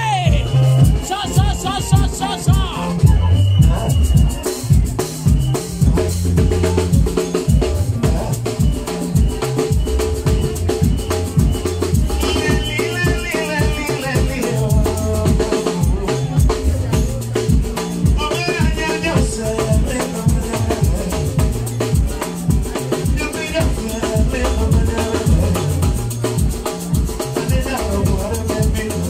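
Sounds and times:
upbeat dance music: 0:00.0 - 0:16.9
high bending melody: 0:00.0 - 0:28.5.

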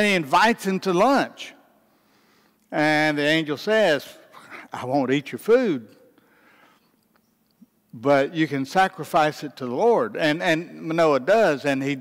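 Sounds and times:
man speaking: 0:00.0 - 0:01.6, 0:02.7 - 0:06.0, 0:08.0 - 0:12.0.

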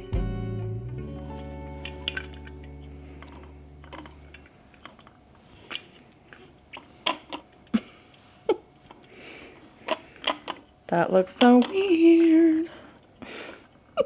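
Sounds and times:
guitar chord ringing: 0:00.0 - 0:04.3.

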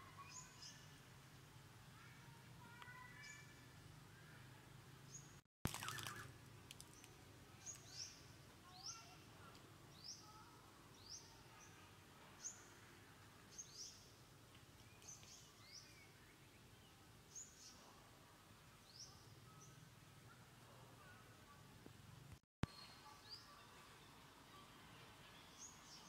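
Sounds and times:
bird calling with downward notes: 0:05.7 - 0:06.4.

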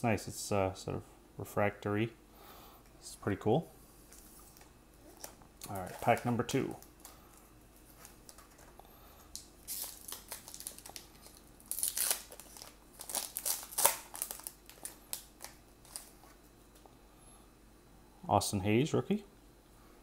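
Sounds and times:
card pack wrapper crinkling and tearing: 0:04.1 - 0:07.2, 0:07.8 - 0:08.7, 0:09.3 - 0:16.4.

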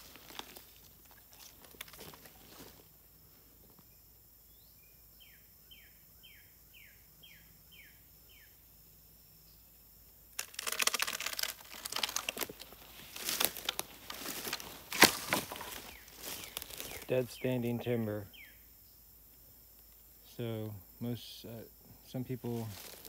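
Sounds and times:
footsteps through dry leaves: 0:00.0 - 0:02.8, 0:10.4 - 0:17.1, 0:22.5 - 0:23.0
bird singing: 0:03.9 - 0:08.8, 0:15.4 - 0:19.2.

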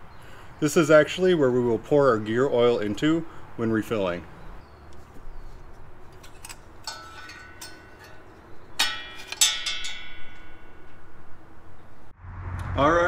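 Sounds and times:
ringing metallic clinks: 0:06.0 - 0:12.1.

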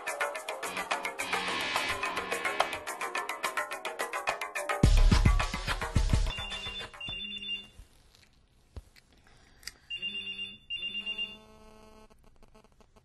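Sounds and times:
telephone ringing: 0:06.3 - 0:07.8, 0:09.9 - 0:11.6.

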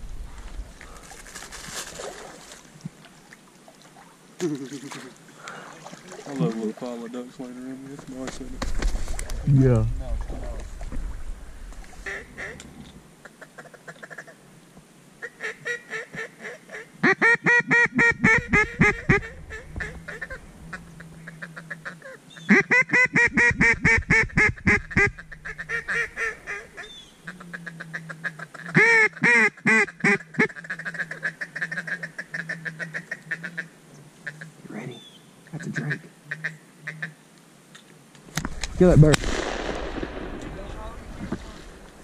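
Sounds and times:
duck call quacks: 0:13.5 - 0:14.4, 0:15.2 - 0:34.5, 0:35.6 - 0:37.2.

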